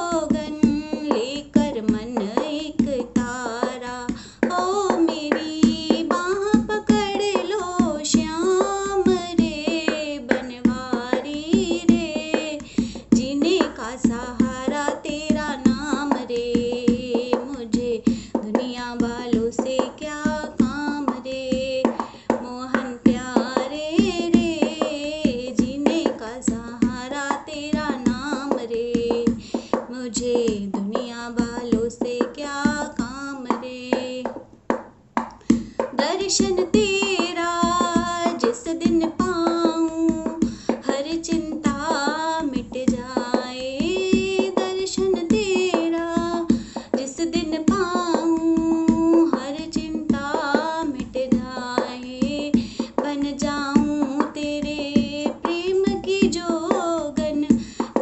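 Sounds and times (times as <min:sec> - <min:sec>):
woman singing devotional song: 0:00.0 - 0:34.5, 0:35.5 - 0:58.0
hand drum beat: 0:00.0 - 0:58.0.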